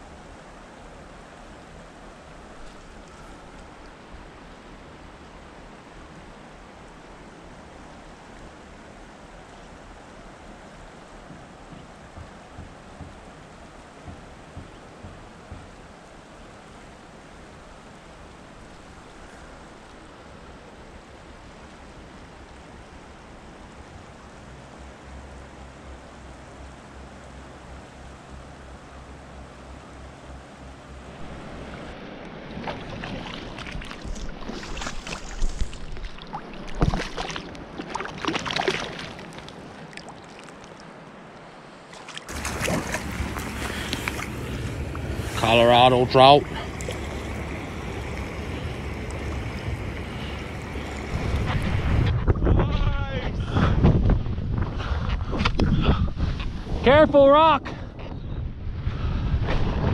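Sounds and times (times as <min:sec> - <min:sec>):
river rushing over rocks: 0:00.0 - 0:52.2
small water splashes: 0:31.2 - 0:52.1
low rumble: 0:42.3 - 0:56.4.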